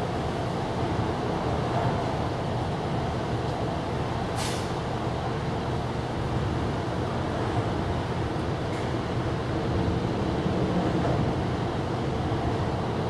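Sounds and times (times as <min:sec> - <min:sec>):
short sharp hiss: 0:04.3 - 0:04.8.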